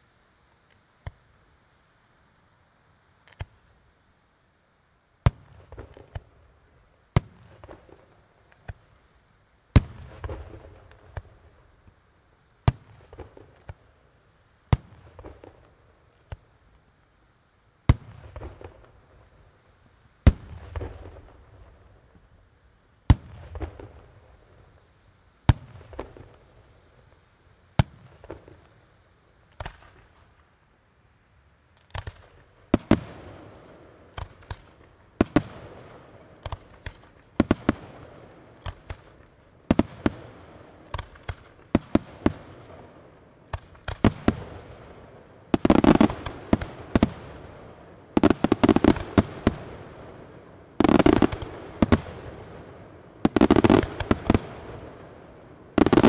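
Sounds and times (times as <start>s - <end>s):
firework crackling trail: 5.2s - 17.2s, 17.8s - 56.0s
firework shells bursting: 45.5s - 47.5s.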